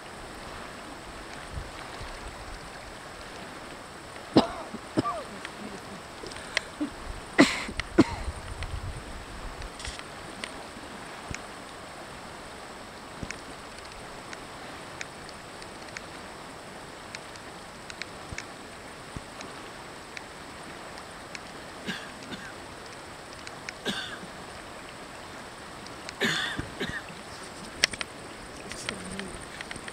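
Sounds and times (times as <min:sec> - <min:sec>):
flowing river water: 0:00.0 - 0:29.9
person coughing: 0:04.4 - 0:05.9, 0:07.4 - 0:08.3, 0:21.9 - 0:22.5, 0:23.9 - 0:24.2, 0:26.2 - 0:27.0.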